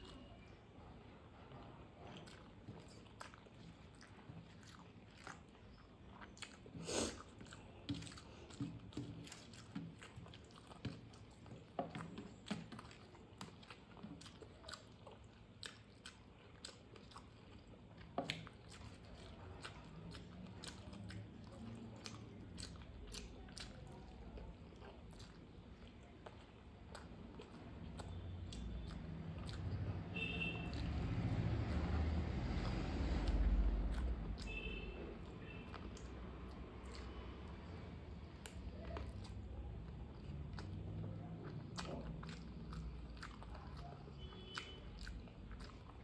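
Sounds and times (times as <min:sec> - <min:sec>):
person chewing food: 0:00.0 - 0:46.0
wet mouth clicks: 0:27.8 - 0:46.0.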